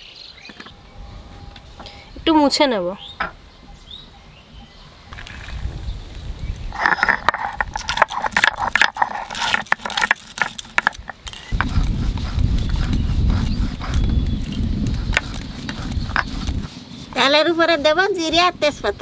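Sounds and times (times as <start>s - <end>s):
stone pestle crushing and scraping: 5.1s - 16.8s.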